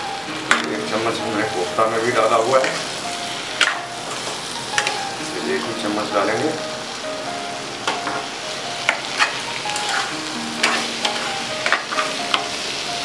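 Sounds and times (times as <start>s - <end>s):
food sizzling in a pan: 0.0s - 13.0s
spatula scraping a pan: 8.9s - 12.5s.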